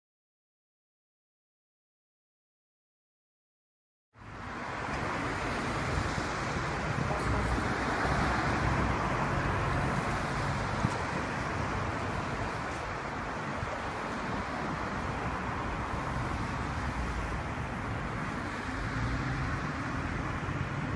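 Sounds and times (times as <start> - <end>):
road traffic rushing past: 4.2 - 20.9.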